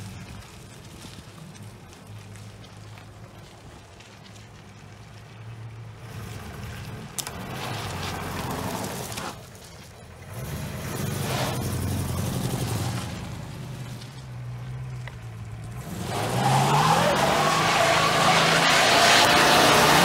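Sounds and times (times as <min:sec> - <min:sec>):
car engine revving: 0:10.2 - 0:20.0.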